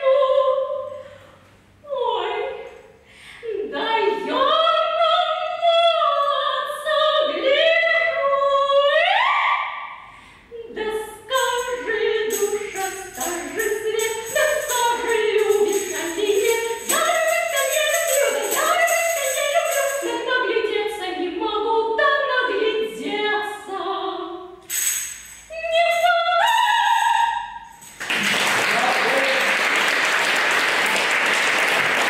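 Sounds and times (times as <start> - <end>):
woman singing: 0.0 - 1.0, 1.8 - 9.6, 10.5 - 24.5, 25.5 - 27.6
high jingling: 11.3 - 20.3.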